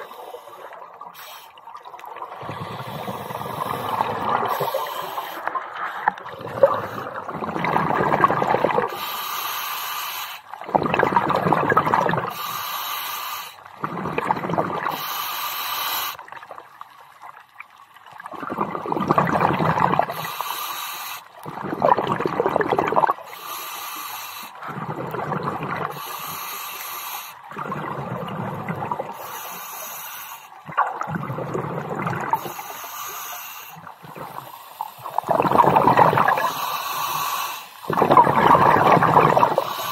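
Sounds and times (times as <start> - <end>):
exhaust bubbles rushing underwater: 1.7 - 9.0, 10.5 - 12.4, 13.7 - 15.0, 18.1 - 20.2, 21.4 - 23.3, 24.6 - 26.0, 27.4 - 29.2, 30.6 - 32.6, 33.8 - 36.7, 37.8 - 39.9
regulator hiss: 32.4 - 33.8, 36.4 - 37.9.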